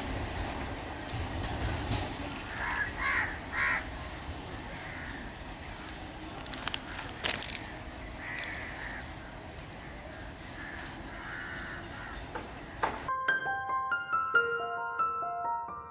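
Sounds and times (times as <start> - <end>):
outdoor background hiss: 0.0 - 13.1
crows cawing: 2.5 - 4.0, 4.7 - 12.8
sharp clicks: 6.4 - 8.7
piano music: 13.1 - 15.9.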